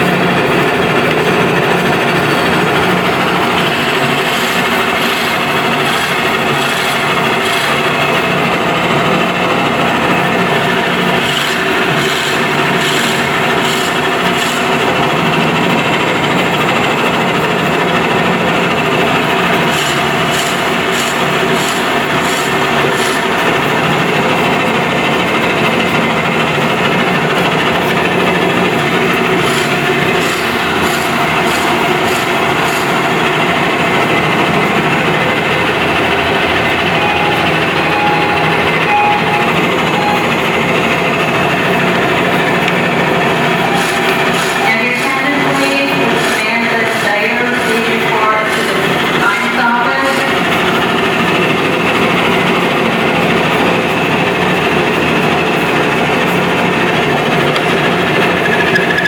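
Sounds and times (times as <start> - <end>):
rapid ticking: 0.0 - 49.2
machine hum: 0.0 - 59.0
drill bit grinding into wood: 3.7 - 7.9, 11.2 - 14.7, 19.7 - 23.2, 29.2 - 33.2.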